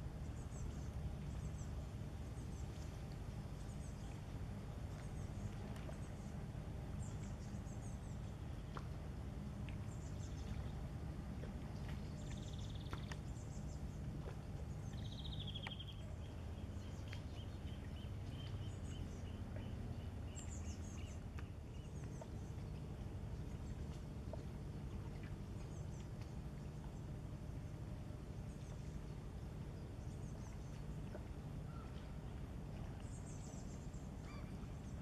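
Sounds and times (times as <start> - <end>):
steady low rumble: 0.0 - 35.0
small birds chirping and trilling: 14.8 - 22.7.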